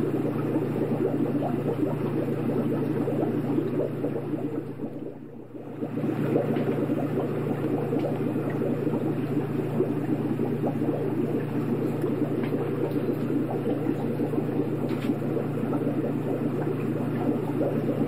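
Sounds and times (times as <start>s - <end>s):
aquarium water bubbling: 0.0s - 18.0s
low hum: 0.0s - 18.0s.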